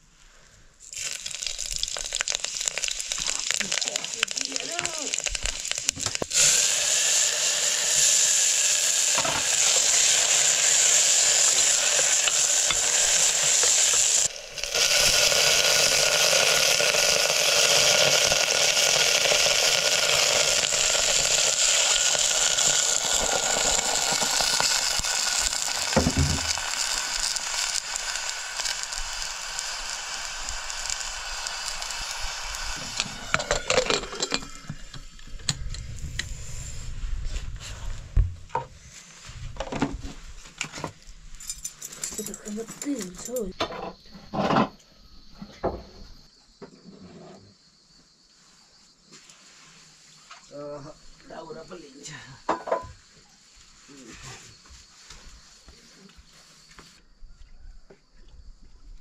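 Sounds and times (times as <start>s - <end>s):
hot oil sizzling in a pot: 0.8s - 35.2s, 41.3s - 43.5s, 49.5s - 55.4s.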